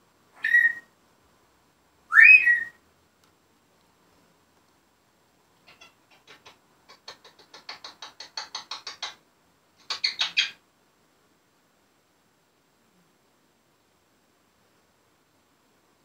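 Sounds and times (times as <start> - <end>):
parrot squeaks: 0.4 - 0.9, 2.1 - 2.8, 5.7 - 9.2, 9.8 - 10.6
parrot squeaky clicks: 9.9 - 10.6.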